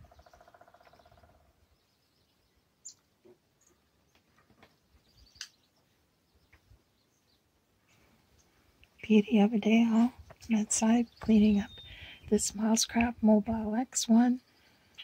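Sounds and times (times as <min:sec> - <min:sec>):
woodpecker drumming: 0:00.0 - 0:01.5.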